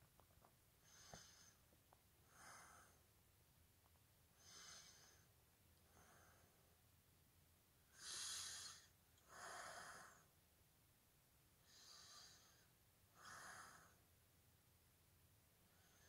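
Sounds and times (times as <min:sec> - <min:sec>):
faint breathing: 0:00.8 - 0:03.1, 0:04.3 - 0:06.8, 0:07.9 - 0:10.4, 0:11.6 - 0:14.1, 0:15.6 - 0:16.0.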